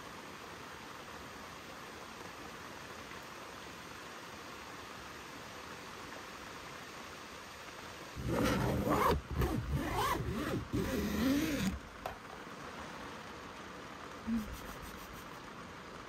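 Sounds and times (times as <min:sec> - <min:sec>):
stream rushing: 0:00.0 - 0:16.0
person making wordless vocal sound: 0:14.2 - 0:14.8.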